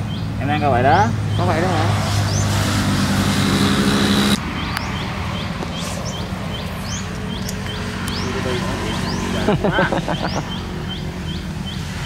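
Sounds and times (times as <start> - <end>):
motor humming: 2.3 - 4.4.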